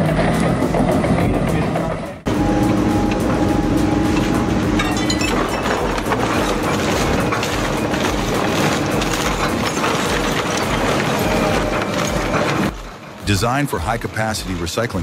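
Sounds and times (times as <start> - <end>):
shredder machine drone: 0.0 - 13.2
wood cracking and snapping: 5.8 - 12.9.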